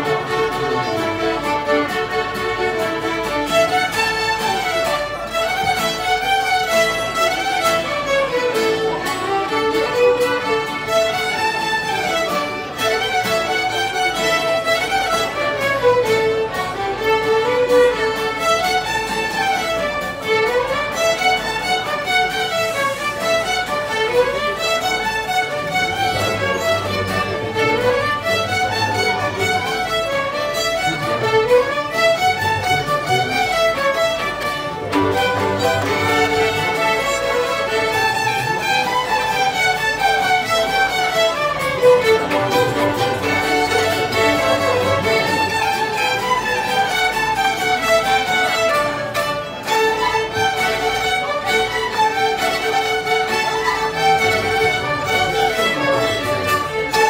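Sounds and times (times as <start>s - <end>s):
violins playing fiddle tune: 0.0s - 57.0s.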